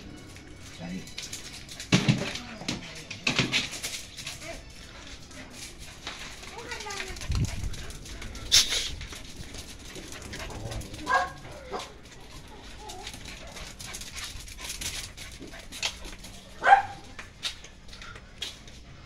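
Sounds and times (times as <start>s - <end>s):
small dog barking: 11.1s - 12.0s, 16.6s - 17.2s.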